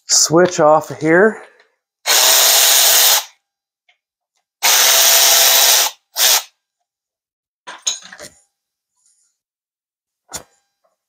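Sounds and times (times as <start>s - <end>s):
power tool bursts: 2.1s - 3.3s, 4.6s - 6.5s.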